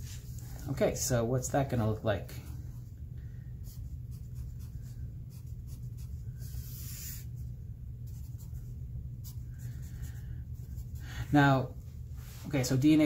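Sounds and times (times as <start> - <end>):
low hum: 2.3 - 12.5
pencil scratching on paper: 3.6 - 7.4.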